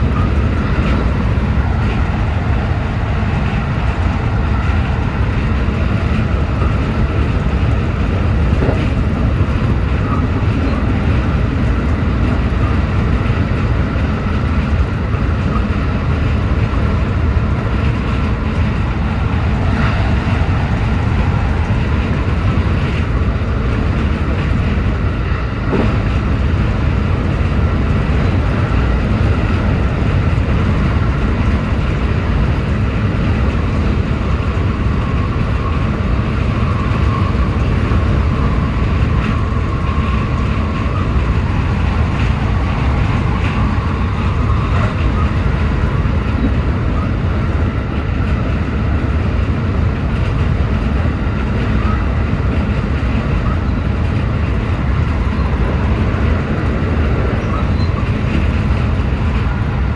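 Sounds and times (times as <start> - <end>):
train running rumble: 0.0 - 59.9.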